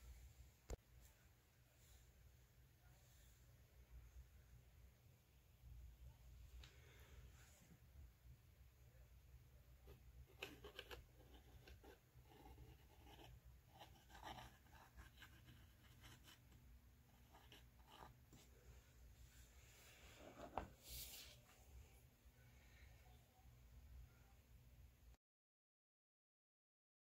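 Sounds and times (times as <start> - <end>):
palette knife scraping paint: 9.9 - 18.2.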